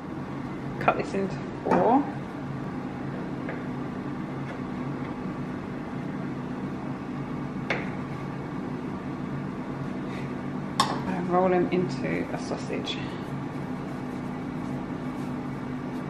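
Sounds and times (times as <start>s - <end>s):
air fryer fan humming: 0.0s - 16.0s.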